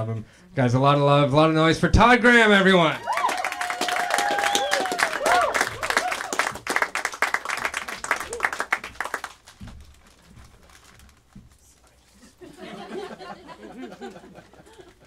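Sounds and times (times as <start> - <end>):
crowd applauding: 2.9 - 9.6
whoops: 3.0 - 6.5, 8.1 - 8.6.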